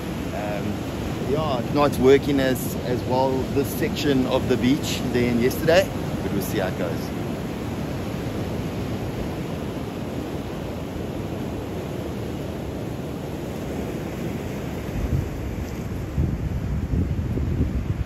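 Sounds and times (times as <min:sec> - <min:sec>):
ocean surf washing onto beach: 0:00.0 - 0:18.0
wind buffeting microphone: 0:00.0 - 0:18.0.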